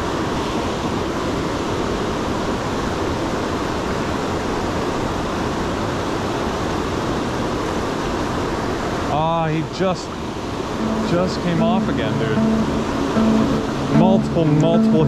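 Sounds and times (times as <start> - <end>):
river rapids rushing: 7.8 - 15.0.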